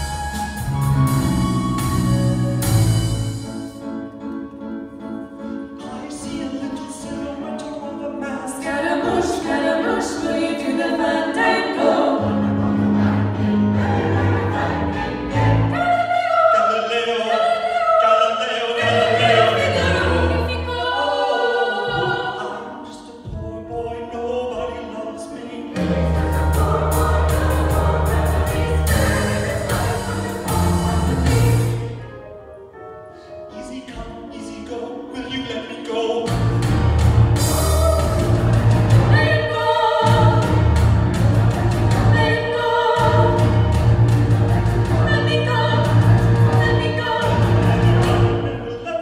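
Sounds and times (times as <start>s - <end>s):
band accompaniment: 0.0s - 4.6s, 23.2s - 32.5s, 35.2s - 49.0s
choir singing in harmony: 0.0s - 49.0s.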